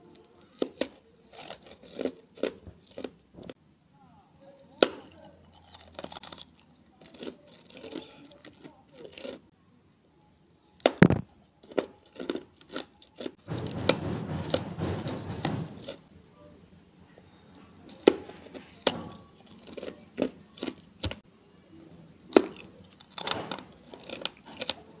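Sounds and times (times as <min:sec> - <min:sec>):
crunching hard candy and ice: 0:00.4 - 0:03.6, 0:04.7 - 0:09.5, 0:10.8 - 0:16.0, 0:17.8 - 0:21.2, 0:22.3 - 0:25.0.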